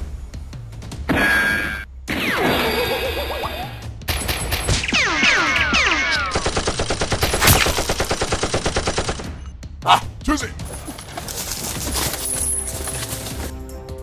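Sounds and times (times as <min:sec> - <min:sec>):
machine-gun shots: 0:04.1 - 0:09.4.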